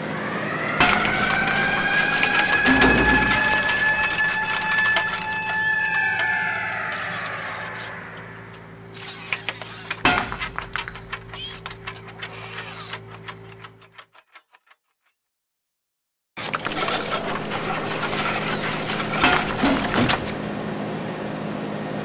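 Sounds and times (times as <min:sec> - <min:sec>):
clatter of walking robots: 0:00.6 - 0:14.8, 0:16.4 - 0:20.5
ringing tone: 0:00.8 - 0:09.0.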